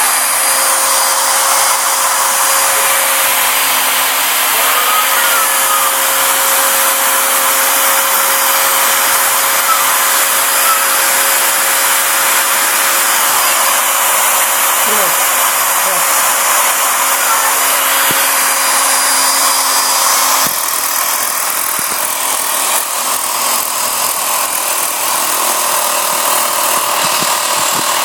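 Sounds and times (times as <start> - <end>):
dust extraction vacuum hiss: 0.0 - 22.2
router spindle whine: 0.0 - 28.0.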